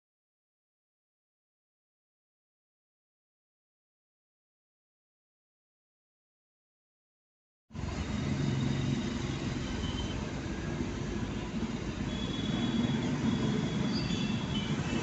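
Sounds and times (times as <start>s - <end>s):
road hiss: 7.7s - 15.0s.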